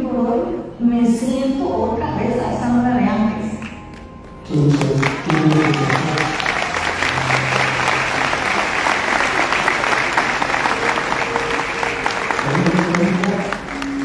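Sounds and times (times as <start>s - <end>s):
music playing: 0.0s - 14.0s
audience clapping: 3.6s - 14.0s.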